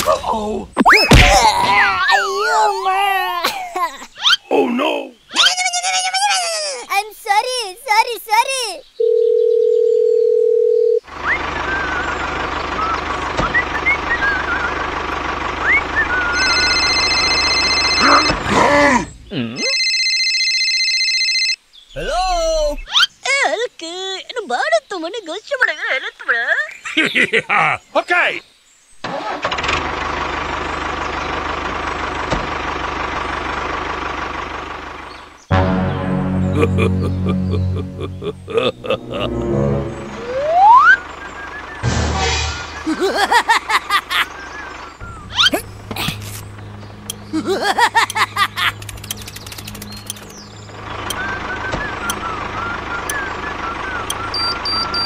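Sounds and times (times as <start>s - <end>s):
birds chirping: 0.0s - 9.6s, 11.0s - 19.7s, 21.6s - 29.0s, 30.5s - 41.9s, 42.5s - 55.0s
telephone dial tone: 9.0s - 11.0s, 16.4s - 18.4s, 19.6s - 21.6s
tractor engine running: 11.0s - 19.3s, 29.0s - 55.0s
high electronic tone: 16.3s - 18.4s.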